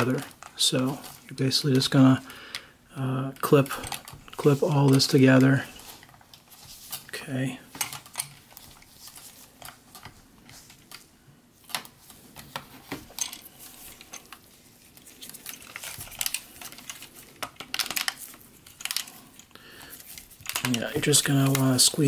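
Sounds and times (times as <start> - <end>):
plastic toy parts clicking: 15.2 - 22.0.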